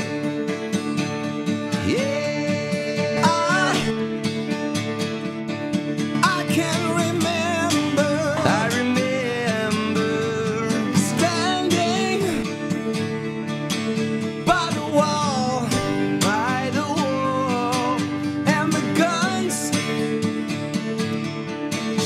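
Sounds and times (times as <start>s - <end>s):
acoustic guitars strumming: 0.0s - 22.0s
man singing: 1.6s - 4.0s, 6.2s - 12.6s, 14.4s - 20.1s.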